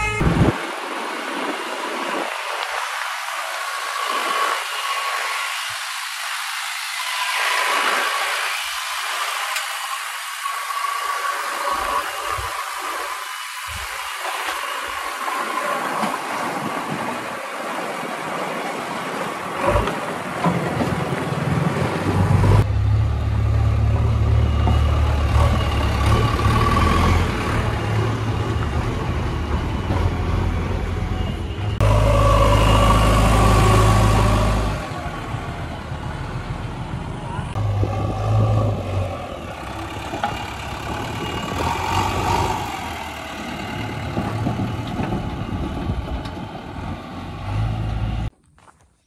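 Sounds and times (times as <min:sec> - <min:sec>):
backhoe diesel engine driving past: 0:13.8 - 0:48.3.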